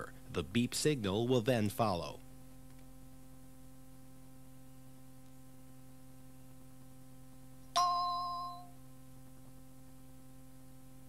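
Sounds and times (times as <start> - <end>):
faint steady hum: 0.0 - 11.0
bell-like chime: 7.8 - 8.8.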